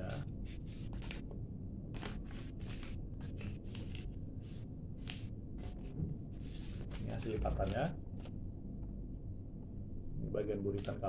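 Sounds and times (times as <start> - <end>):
paper rustling and crinkling: 0.6 - 1.2, 1.9 - 4.2.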